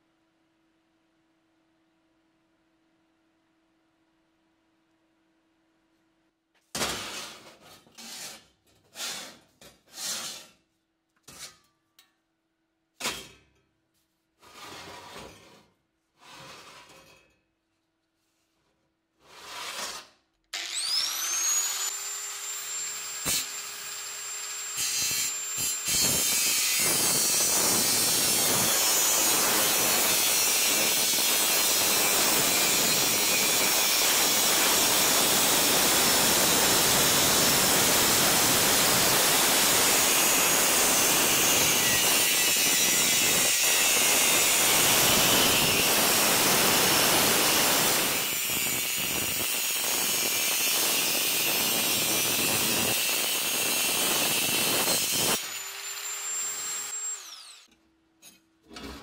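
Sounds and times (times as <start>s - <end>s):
short scraping strokes: 7.1s - 10.6s
grinder disc grinding steel: 19.3s - 59.0s
angle grinder whine: 20.6s - 33.8s.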